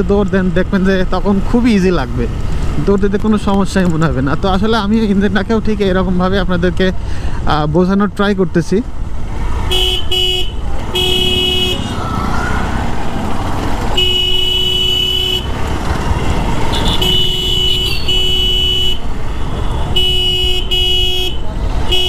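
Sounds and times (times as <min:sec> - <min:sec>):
motorcycle engine: 0:09.0 - 0:22.0
motorcycle horn beeps: 0:09.7 - 0:11.9, 0:13.9 - 0:15.5, 0:16.3 - 0:22.0.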